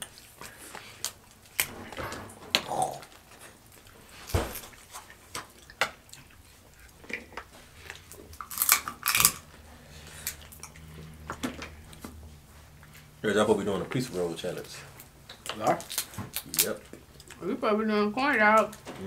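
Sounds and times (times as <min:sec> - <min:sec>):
crab legs cracking: 0:02.5 - 0:12.2, 0:14.6 - 0:17.4
chewing: 0:02.5 - 0:13.2, 0:14.5 - 0:17.4.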